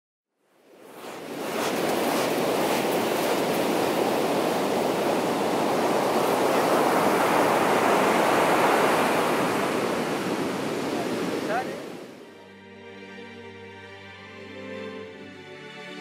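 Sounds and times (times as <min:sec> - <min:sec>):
waves breaking on a beach: 0:00.6 - 0:12.3.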